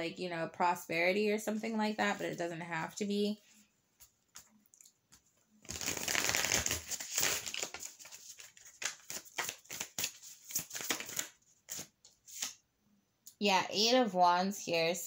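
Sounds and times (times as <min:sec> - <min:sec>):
cards rustling: 0:05.1 - 0:12.6.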